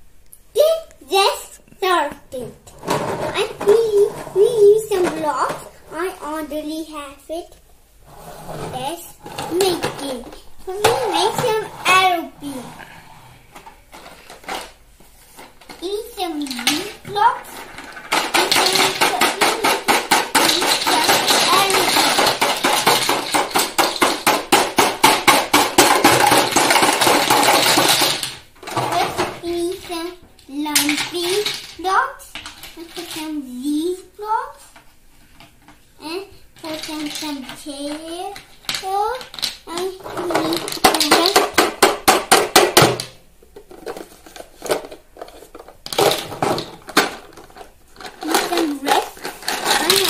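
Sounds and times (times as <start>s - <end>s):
plastic blocks rattling in container: 9.2s - 12.6s, 13.6s - 14.8s, 15.4s - 33.4s, 36.6s - 50.0s.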